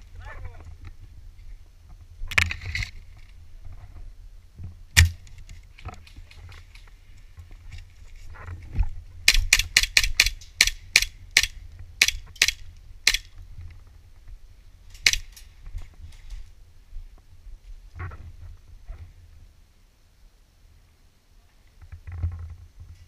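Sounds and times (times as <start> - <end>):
airsoft rifle shots: 5.0 - 5.2, 9.2 - 13.3.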